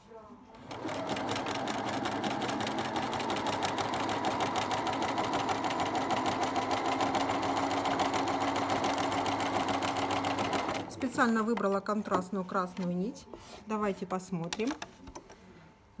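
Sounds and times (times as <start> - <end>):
sewing machine stitching: 0.6 - 11.3.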